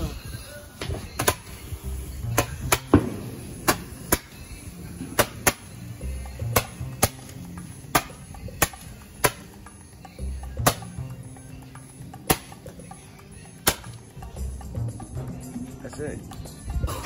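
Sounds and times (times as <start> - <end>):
fireworks cracking: 0.0 - 9.6.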